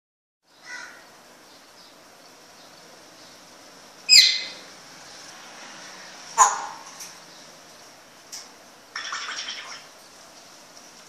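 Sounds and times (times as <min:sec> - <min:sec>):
parrot calling: 0:04.1 - 0:04.6
parrot screeching: 0:04.1 - 0:04.6.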